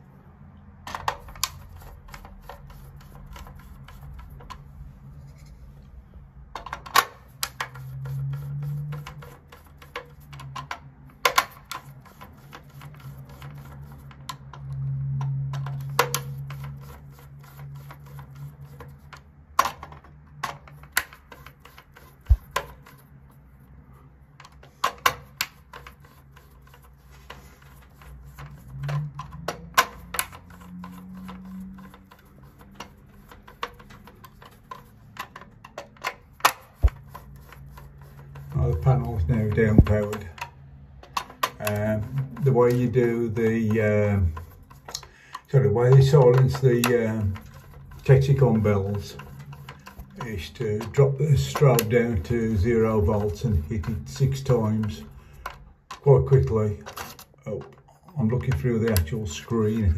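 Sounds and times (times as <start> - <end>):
screwdriver clicking on screw terminals: 27.6 - 59.9.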